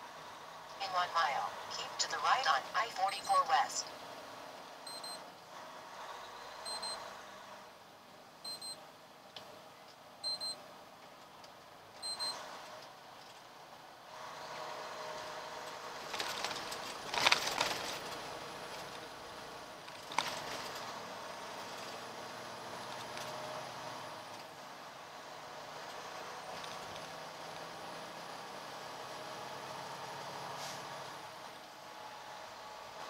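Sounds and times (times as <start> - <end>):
road noise inside cab: 0.0 - 33.0
truck cab electronic beeps: 1.8 - 3.7, 4.8 - 5.2, 6.6 - 7.0, 8.4 - 8.8, 10.2 - 10.6, 12.0 - 12.4.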